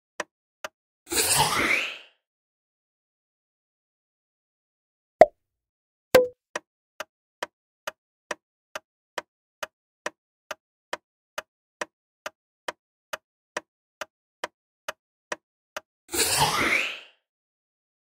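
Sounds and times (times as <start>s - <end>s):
countdown timer ticking: 6.2s - 6.4s.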